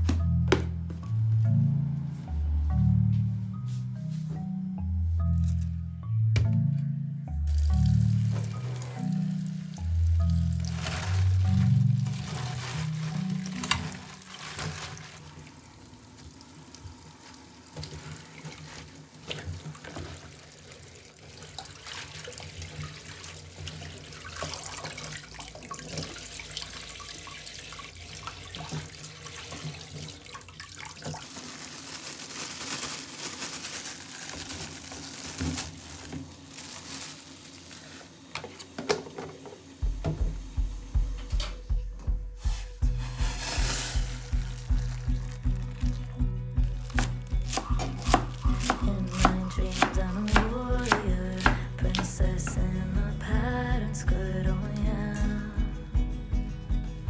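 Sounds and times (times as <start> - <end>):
music with a steady beat: 39.8 - 57.0.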